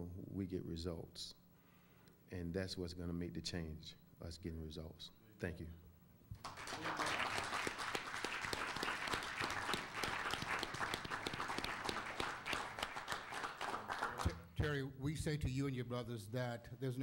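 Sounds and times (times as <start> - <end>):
crowd applauding: 6.4 - 14.3.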